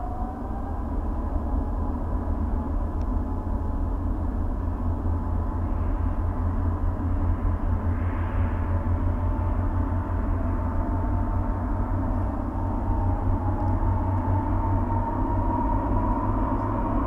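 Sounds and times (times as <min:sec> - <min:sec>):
jet engines at take-off thrust: 0:00.0 - 0:17.0.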